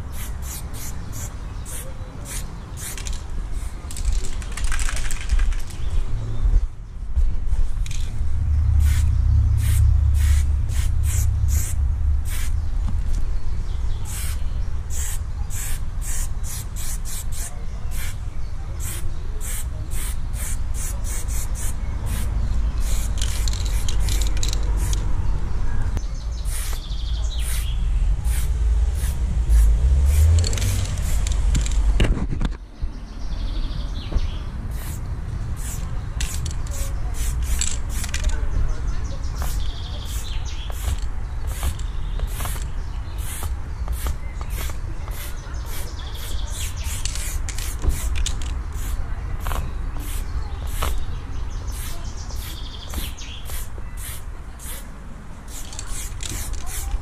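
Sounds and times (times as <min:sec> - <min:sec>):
spray paint can hissing: 0:00.0 - 0:04.9, 0:08.8 - 0:12.6, 0:14.0 - 0:18.2, 0:18.8 - 0:25.0, 0:26.5 - 0:31.8, 0:34.7 - 0:35.0, 0:35.6 - 0:38.3, 0:39.4 - 0:51.0, 0:51.7 - 0:54.9, 0:55.5 - 0:57.0
steady low rumble: 0:05.8 - 0:16.7, 0:20.0 - 0:32.3.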